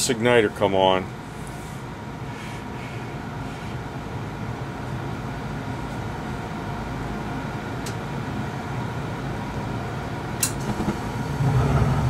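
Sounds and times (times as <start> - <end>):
furnace fan humming: 0.0 - 12.0
sharp click: 10.4 - 10.9.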